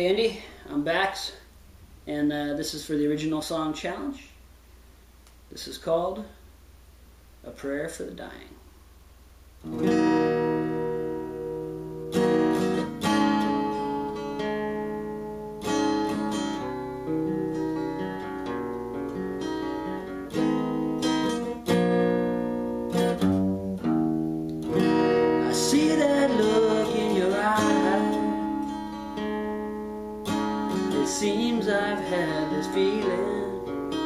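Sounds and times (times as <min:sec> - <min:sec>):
acoustic guitar strummed chords: 0:09.6 - 0:34.0
man singing: 0:25.4 - 0:28.6, 0:30.8 - 0:34.0.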